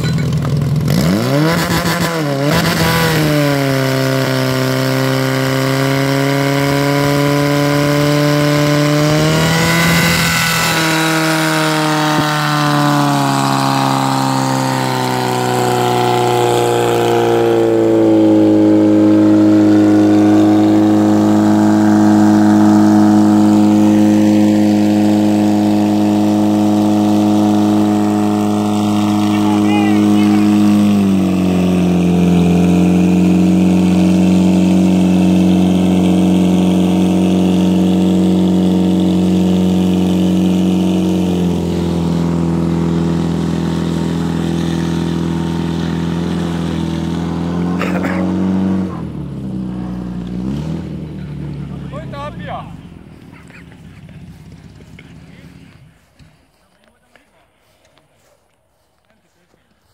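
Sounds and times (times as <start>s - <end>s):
pump engine revving: 0.0s - 56.3s.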